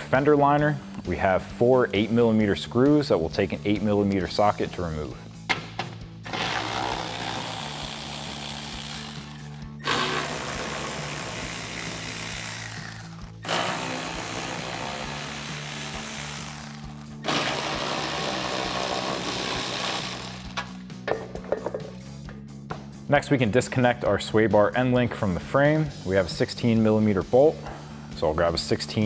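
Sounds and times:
cordless ratchet spinning: 6.3s - 18.2s, 18.9s - 20.8s.

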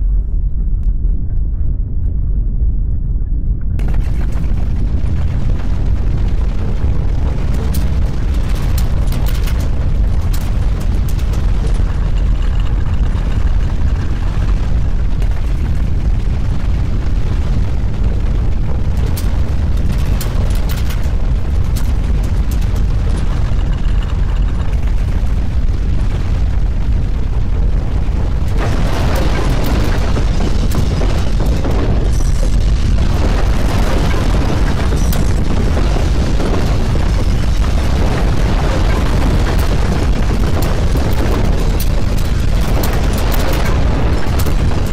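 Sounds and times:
deep earthquake rumble: 0.0s - 44.9s
rushing noise: 3.8s - 44.9s
rattling: 18.8s - 25.6s, 28.3s - 44.9s.

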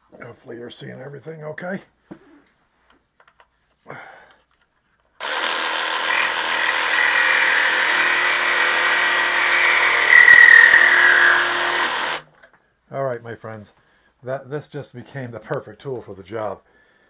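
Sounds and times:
reciprocating saw cutting nail: 5.2s - 12.2s.

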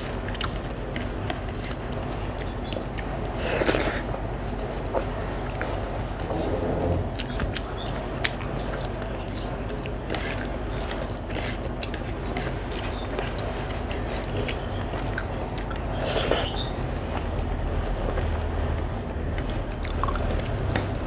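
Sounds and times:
fingers mixing wet rice: 0.0s - 3.2s, 7.2s - 18.6s
steady low hum: 0.0s - 21.0s
chewing and lip smacks: 0.1s - 4.0s, 7.1s - 8.9s, 14.2s - 16.5s, 19.8s - 20.8s.

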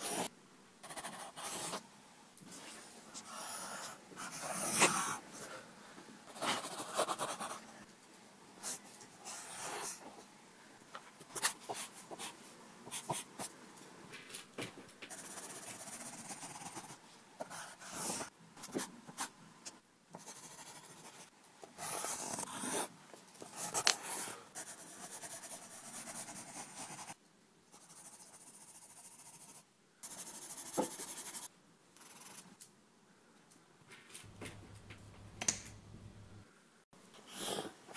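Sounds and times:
pencil scratching on paper: 0.0s - 1.8s, 3.2s - 5.2s, 6.3s - 7.7s, 8.6s - 10.0s, 11.3s - 13.5s, 15.1s - 19.3s, 20.2s - 32.5s.

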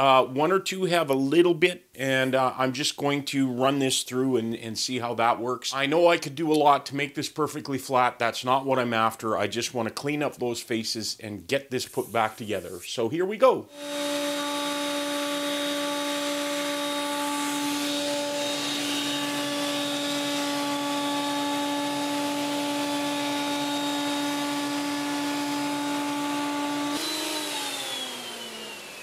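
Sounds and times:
dust extraction through hose: 13.7s - 29.0s
motor winding down: 13.7s - 29.0s
thickness planer humming: 13.7s - 29.0s.

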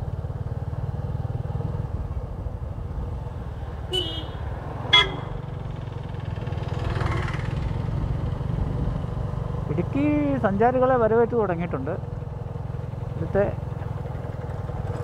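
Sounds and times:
motorcycle engine running: 0.0s - 15.0s
short horn toots: 3.9s - 5.4s.

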